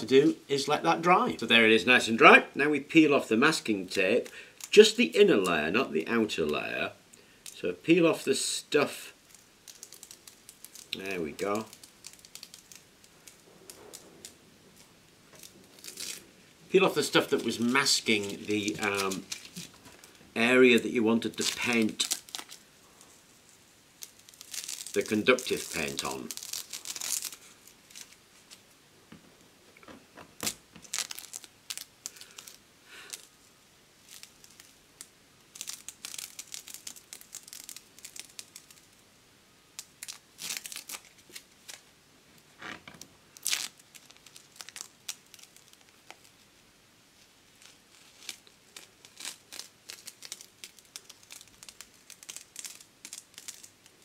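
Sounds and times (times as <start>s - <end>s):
tape crinkling: 3.4s - 6.8s, 8.8s - 39.0s, 39.7s - 46.6s, 47.2s - 54.0s
masking tape peeling: 9.1s - 28.6s, 30.3s - 33.4s, 34.0s - 39.0s, 39.8s - 41.8s, 42.6s - 46.4s, 47.6s - 54.0s.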